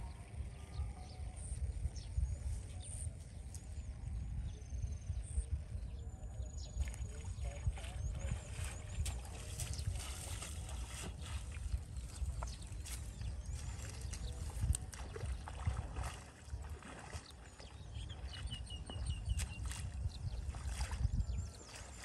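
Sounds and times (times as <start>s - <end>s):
footsteps wading through water: 6.5s - 22.0s.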